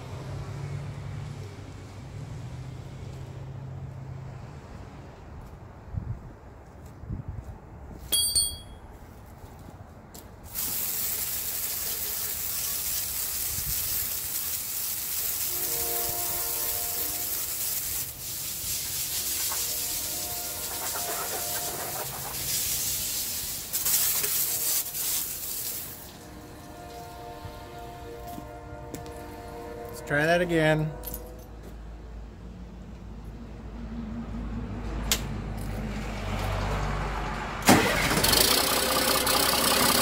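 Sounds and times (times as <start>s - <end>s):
hydraulic fluid spraying hiss: 10.5s - 26.2s.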